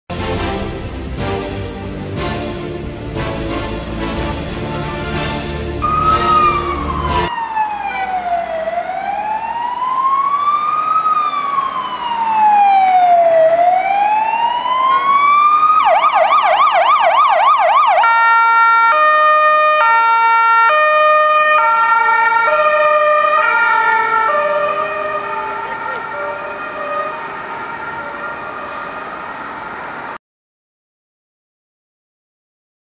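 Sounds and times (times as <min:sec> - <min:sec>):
intro music: 0:00.1 - 0:07.3
ambulance siren: 0:02.3 - 0:30.2.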